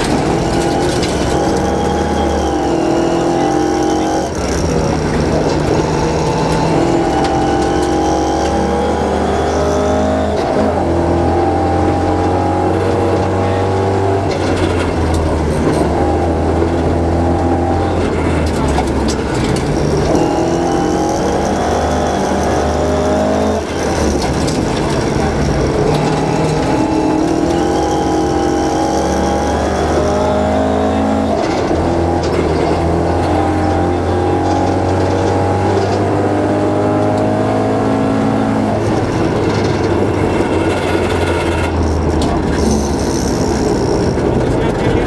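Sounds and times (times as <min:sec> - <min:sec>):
rally car engine revving: 0:00.0 - 0:45.0.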